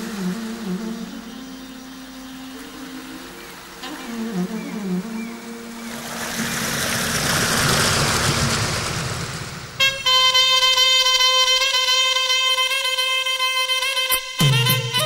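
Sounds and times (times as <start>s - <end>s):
rushing noise: 5.8s - 10.1s
background music: 9.8s - 15.0s.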